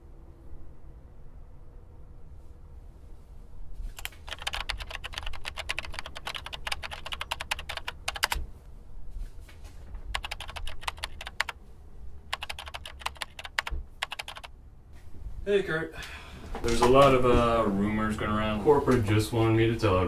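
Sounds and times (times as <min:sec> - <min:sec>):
typing on computer keyboard: 0:04.0 - 0:08.4, 0:10.0 - 0:11.6, 0:12.3 - 0:14.5.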